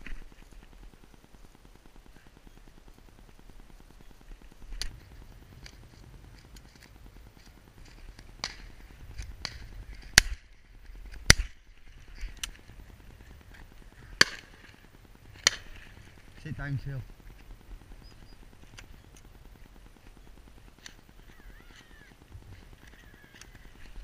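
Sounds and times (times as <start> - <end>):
distant gunshots: 14.0 - 16.0.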